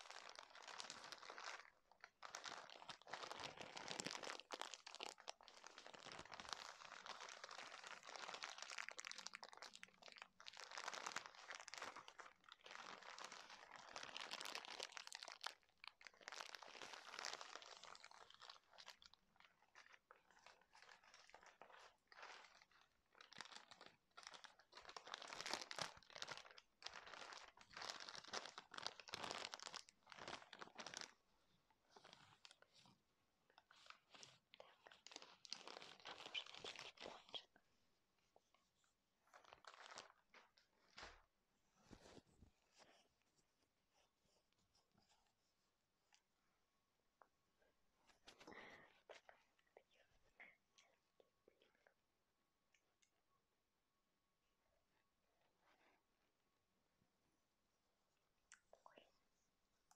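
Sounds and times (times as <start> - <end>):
plastic packaging crinkling: 0.0 - 31.2, 33.6 - 37.5, 39.2 - 41.2.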